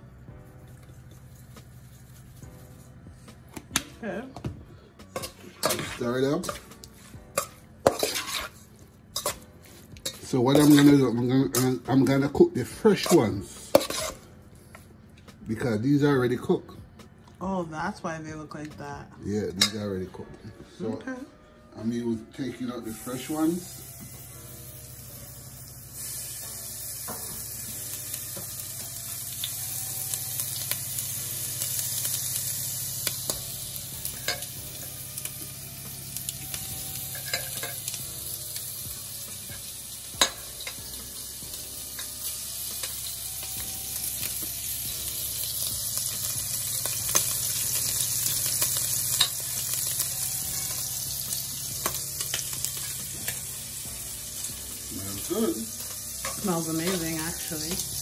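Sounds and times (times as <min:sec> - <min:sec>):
meat sizzling in a pan: 0:05.1 - 0:14.2, 0:22.8 - 0:58.0.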